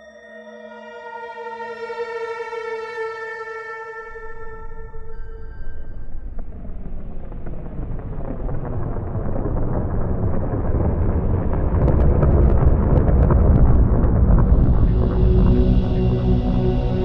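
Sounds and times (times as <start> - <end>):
sharp crackles and pops: 5.8 - 16.5
deep volcanic rumbling: 6.0 - 17.0.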